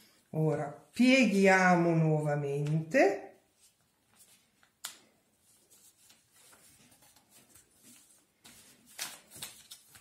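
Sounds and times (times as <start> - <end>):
paper rustling and creasing: 3.5 - 10.0.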